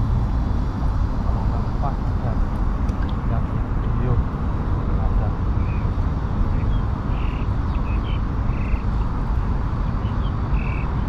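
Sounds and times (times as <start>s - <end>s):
frogs chirping: 5.1s - 11.0s.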